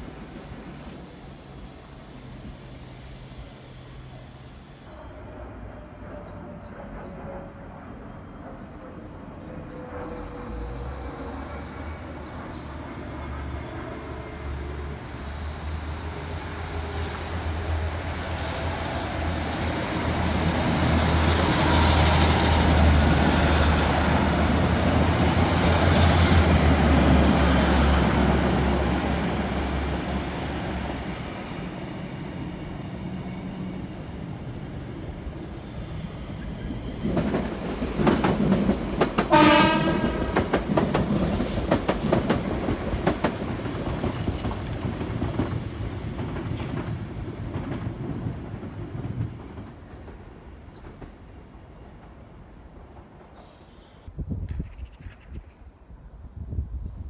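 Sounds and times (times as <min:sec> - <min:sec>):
train wheels on rails: 0:13.4 - 0:53.9.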